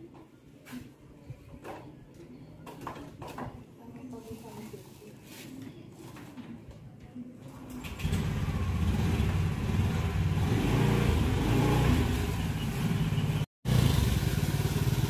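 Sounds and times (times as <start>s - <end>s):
motor scooter engine: 7.8s - 15.0s.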